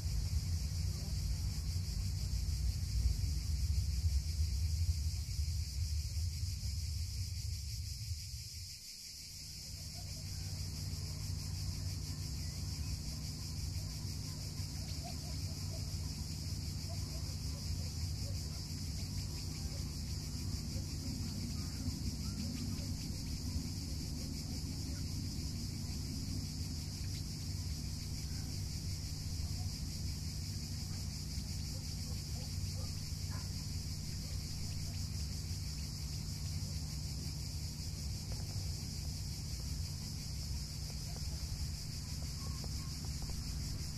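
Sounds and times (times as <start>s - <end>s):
low rumble: 0.0s - 8.7s
insects chirring: 0.0s - 43.9s.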